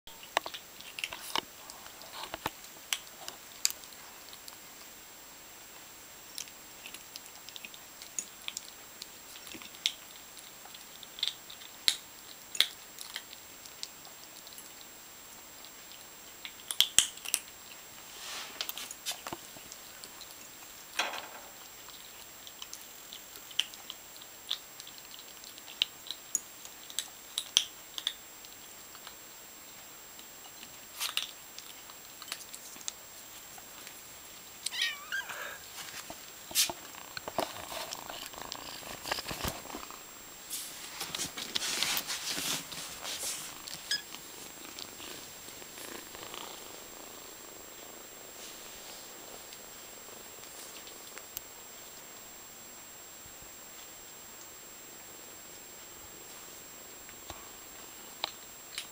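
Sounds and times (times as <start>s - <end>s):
kittens crunching dry kibble: 0.1s - 52.7s
kitten mewing: 34.7s - 35.7s.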